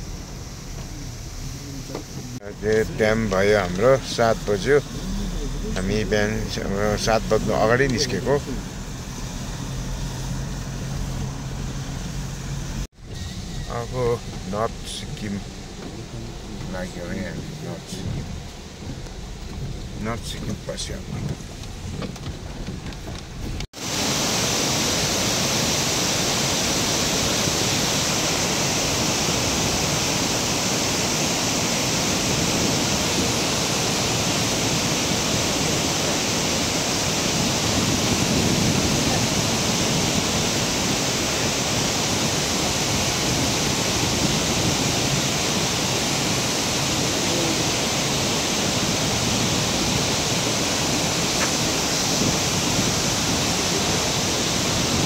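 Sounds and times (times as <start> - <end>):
waterfall rushing: 1.4 - 11.6, 23.8 - 55.0.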